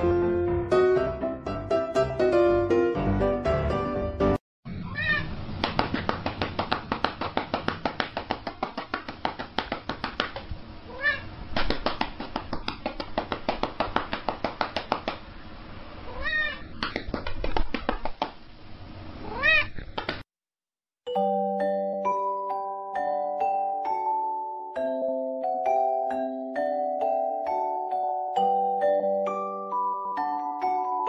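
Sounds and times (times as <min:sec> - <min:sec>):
cat meowing: 0:04.7 - 0:05.4, 0:10.9 - 0:11.4, 0:16.1 - 0:16.7, 0:19.2 - 0:19.8.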